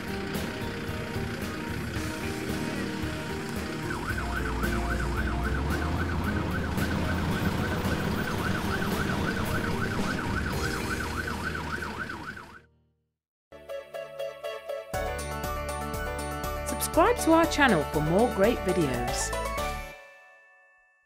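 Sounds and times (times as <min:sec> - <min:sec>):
background music: 0:00.0 - 0:12.5, 0:13.5 - 0:20.5
low engine rumble: 0:00.0 - 0:12.5
fire engine siren yelping: 0:00.0 - 0:12.7.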